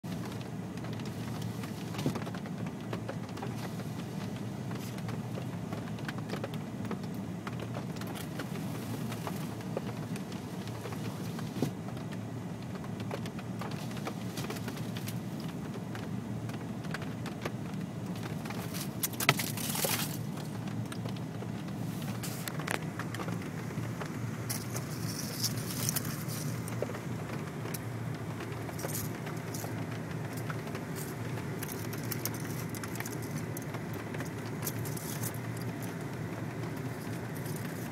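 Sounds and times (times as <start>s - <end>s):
low cabin hum: 0.0s - 37.9s
ice cracking off car window: 0.1s - 37.9s.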